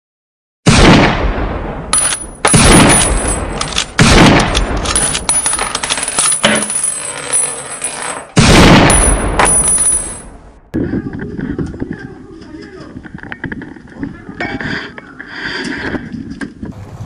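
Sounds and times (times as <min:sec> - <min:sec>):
high metallic ringing: 0:05.0 - 0:10.4.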